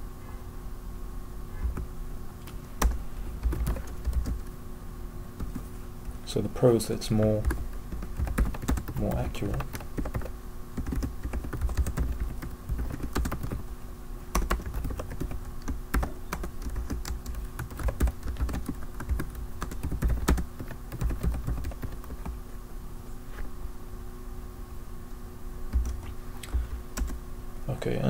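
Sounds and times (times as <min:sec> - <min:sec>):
faint steady hum: 0:00.0 - 0:28.0
computer keyboard typing: 0:02.8 - 0:04.5, 0:05.4 - 0:05.7, 0:07.2 - 0:13.6, 0:14.3 - 0:22.4, 0:25.7 - 0:27.2.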